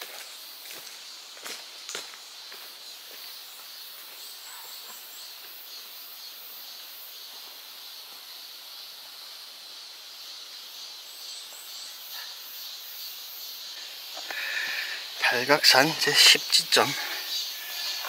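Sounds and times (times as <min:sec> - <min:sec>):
steady high hiss: 0:00.0 - 0:18.0
bird chirping: 0:13.7 - 0:18.0.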